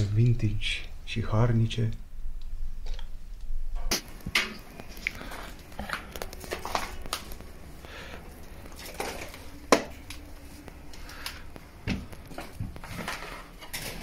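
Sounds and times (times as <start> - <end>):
debris knocking and scraping: 8.2 - 10.8, 11.5 - 14.0.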